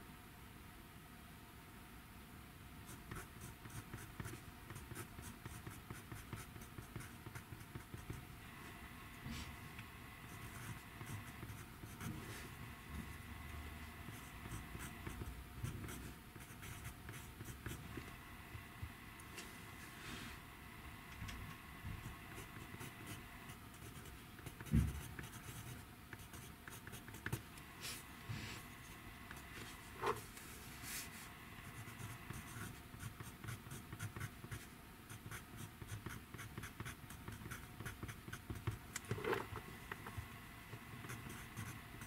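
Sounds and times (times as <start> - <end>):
pencil scratching on paper: 10.2 - 12.6, 14.0 - 17.9, 22.0 - 27.4.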